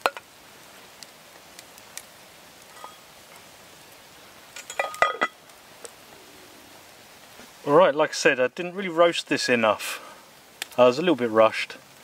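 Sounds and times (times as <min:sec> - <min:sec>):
low steady hiss: 0:00.0 - 0:12.0
metal lid clinking on pot: 0:04.6 - 0:05.4.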